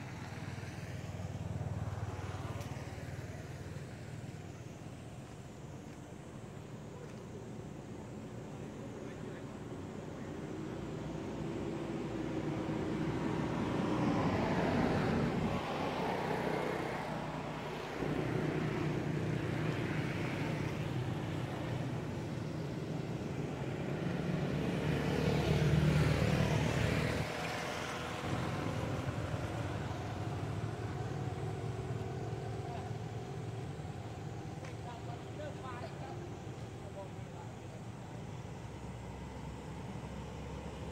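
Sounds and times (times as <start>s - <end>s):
steady traffic hum: 0.0s - 40.9s
vehicles passing: 0.0s - 40.9s.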